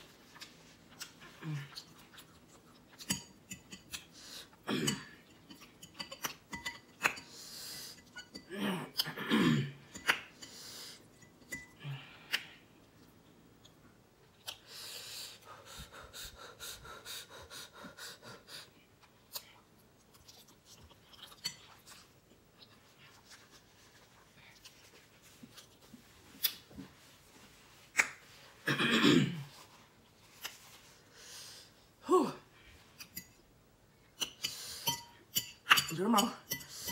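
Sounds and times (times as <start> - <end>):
soft chewing and slurping: 0.0 - 9.2, 10.0 - 15.9, 18.6 - 28.6, 29.4 - 32.0
hard breathing: 14.6 - 18.9.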